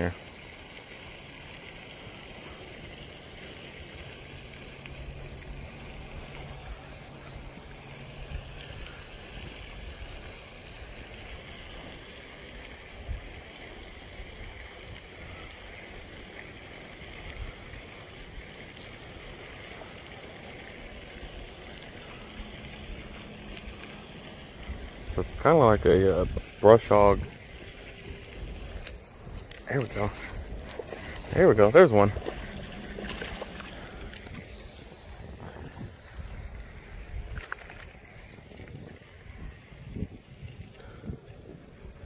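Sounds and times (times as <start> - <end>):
outdoor hiss: 0.0 - 41.3
wind buffeting microphone: 24.5 - 42.0.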